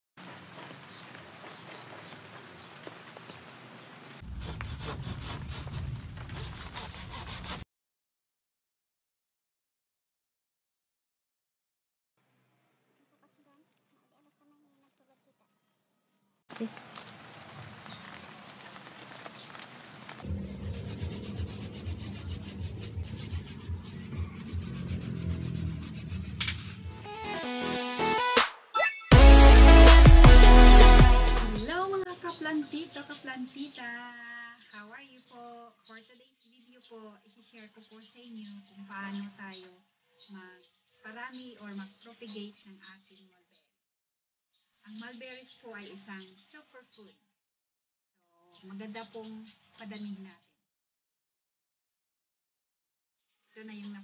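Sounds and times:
branches and leaves rustling: 0:00.2 - 0:07.3, 0:16.5 - 0:20.3
scratchy rubbing and rustling: 0:04.2 - 0:07.6, 0:17.9 - 0:26.9
background noise: 0:12.2 - 0:20.4
hand blade cutting branch: 0:26.1 - 0:26.9.

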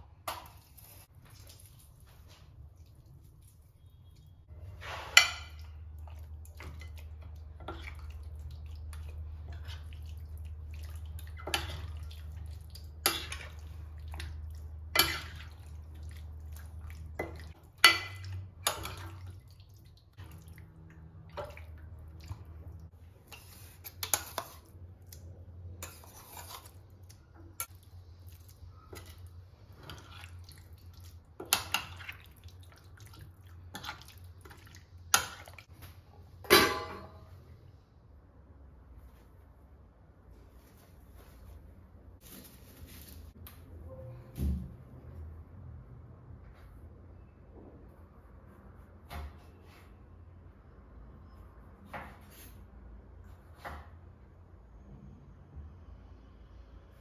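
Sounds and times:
wet squelching: 0:00.7 - 0:04.3, 0:05.6 - 0:22.9, 0:26.3 - 0:35.7.

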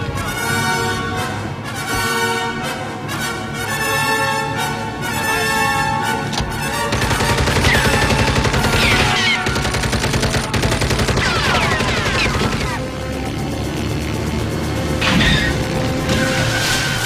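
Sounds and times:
machine gun firing rapidly: 0:06.9 - 0:12.8.

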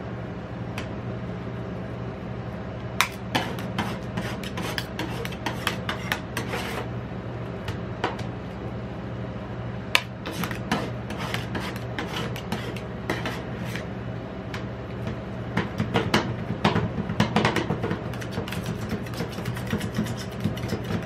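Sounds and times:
low steady hum: 0:00.0 - 0:21.0
metal spatulas tapping and scraping: 0:03.0 - 0:06.8.

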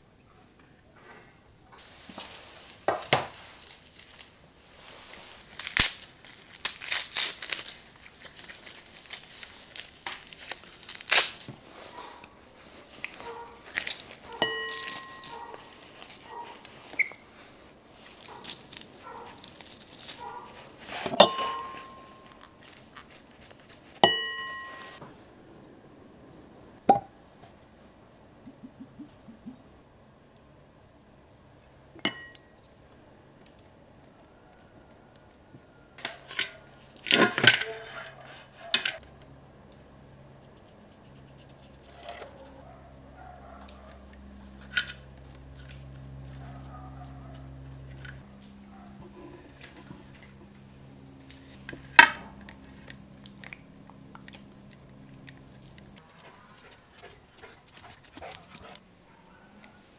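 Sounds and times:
garlic crunching in a press: 0:02.9 - 0:04.4, 0:05.1 - 0:17.0, 0:18.0 - 0:24.0
metal press clinking on glass bowl: 0:21.2 - 0:22.1.

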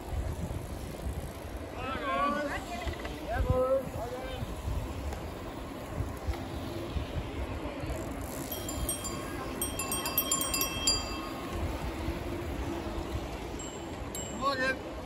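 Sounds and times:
wind rumble on microphone: 0:00.0 - 0:01.8, 0:02.5 - 0:14.2
bicycle bells ringing: 0:08.2 - 0:15.0.

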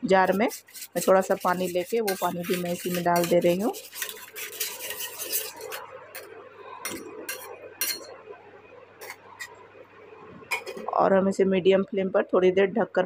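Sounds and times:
spoon scraping through sauce: 0:00.2 - 0:06.3
spoon clinking against steel pan: 0:06.9 - 0:08.1.

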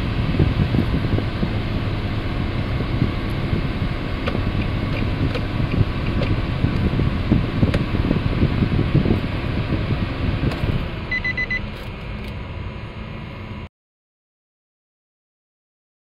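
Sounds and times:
car engine idling: 0:00.0 - 0:13.0
high electronic beeps: 0:11.1 - 0:11.7.

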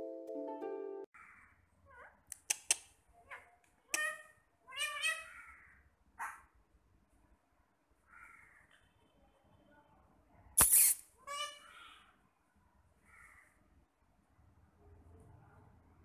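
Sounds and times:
sharp clicks: 0:02.3 - 0:02.9, 0:10.6 - 0:11.0
harsh squawks: 0:03.3 - 0:05.6, 0:10.6 - 0:12.0.

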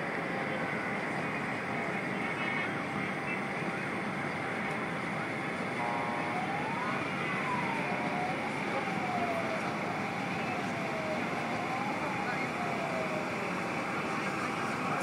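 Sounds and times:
city traffic: 0:00.0 - 0:15.0
siren wailing: 0:05.7 - 0:15.0.

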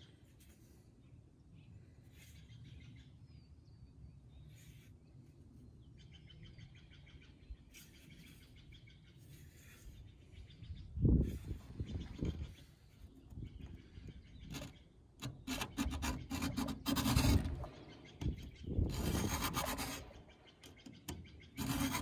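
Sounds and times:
birds chirping: 0:05.6 - 0:22.0
file scraping chainsaw chain: 0:14.5 - 0:17.8, 0:18.9 - 0:20.2, 0:21.6 - 0:22.0.

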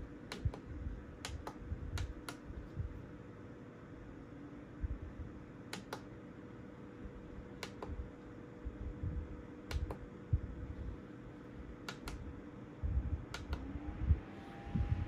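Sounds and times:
faint steady hum: 0:00.0 - 0:15.0
fan push buttons clicking: 0:00.2 - 0:02.5, 0:05.7 - 0:06.1, 0:07.6 - 0:08.1, 0:09.6 - 0:10.1, 0:11.8 - 0:12.3, 0:13.3 - 0:13.7.

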